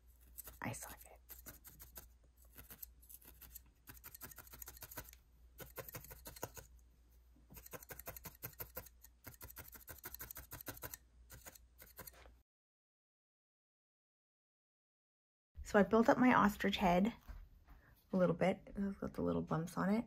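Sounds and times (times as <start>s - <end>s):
felting needle stabbing wool: 0.2s - 6.8s, 7.5s - 12.3s.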